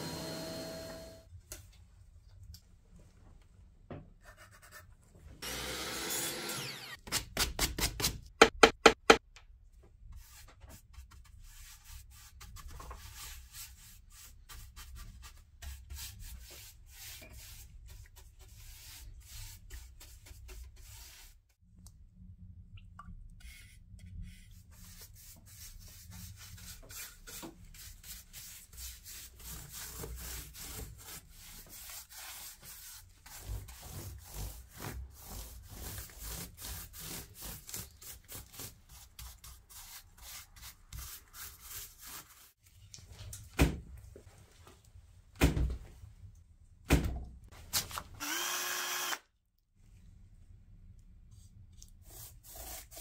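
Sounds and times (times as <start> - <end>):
paintbrush scratching on wood: 24.3 - 42.6.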